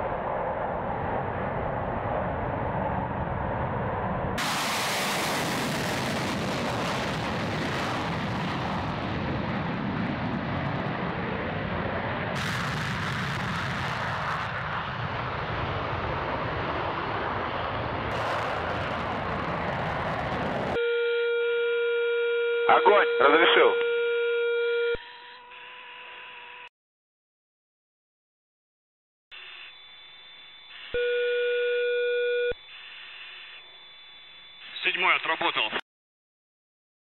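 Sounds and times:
fighter jet taking off: 0.0s - 20.8s.

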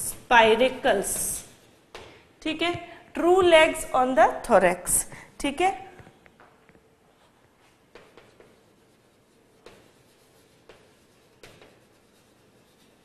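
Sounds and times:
chalk scratching on blackboard: 0.9s - 1.9s, 7.1s - 13.0s
chalk tapping on board: 7.9s - 13.0s.

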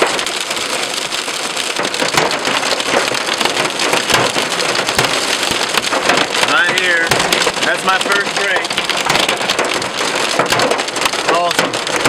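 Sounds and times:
hail clattering on car roof: 0.0s - 12.0s
heavy rain on car: 0.0s - 12.0s.

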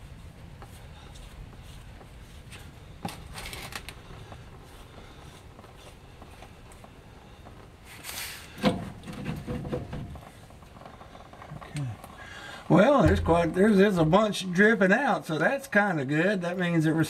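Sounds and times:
metal scraping: 12.7s - 14.3s.

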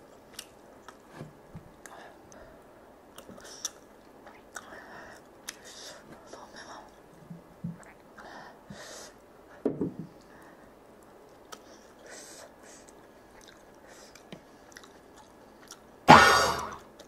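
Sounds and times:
chewing food: 12.8s - 15.9s.

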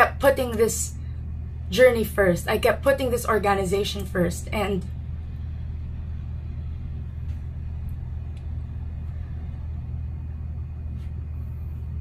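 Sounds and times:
low rumble: 0.0s - 12.0s
faint clicks: 7.2s - 8.7s.

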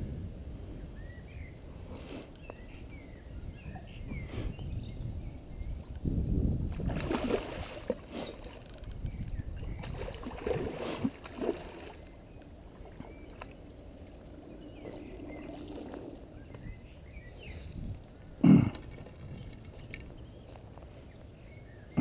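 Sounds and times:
fish splashing in water: 6.8s - 8.2s.

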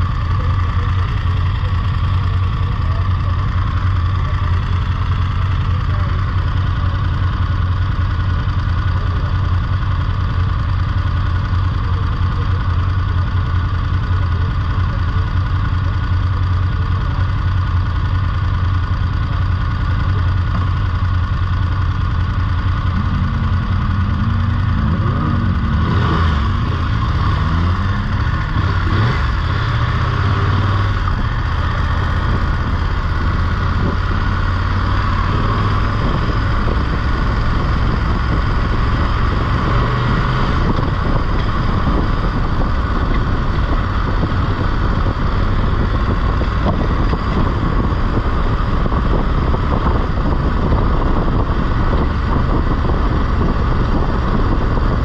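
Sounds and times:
motorcycle engine running: 0.0s - 55.0s
second engine rising and falling: 22.2s - 55.0s.

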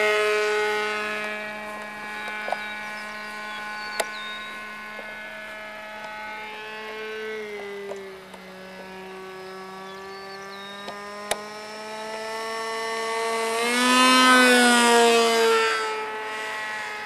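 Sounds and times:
model airplane engine buzzing: 0.0s - 17.0s.

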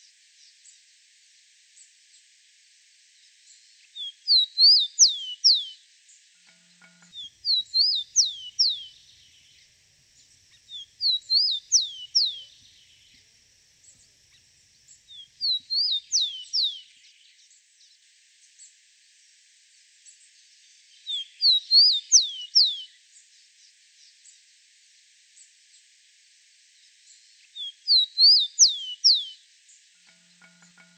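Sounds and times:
sparrow singing: 3.9s - 5.8s, 6.5s - 17.1s, 21.1s - 22.9s, 27.5s - 29.4s.

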